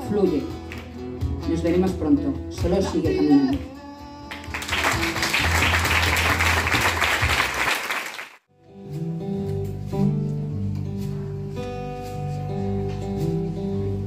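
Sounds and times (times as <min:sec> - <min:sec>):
audience applauding: 0:04.3 - 0:08.4
acoustic guitars picking notes: 0:08.5 - 0:14.0.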